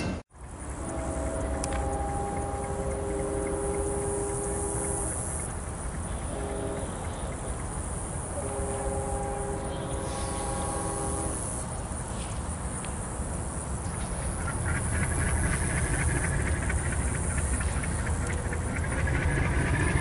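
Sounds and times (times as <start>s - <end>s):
distant locomotive air horn: 0.6s - 12.3s, 14.4s - 20.0s
low rumble: 13.8s - 20.0s.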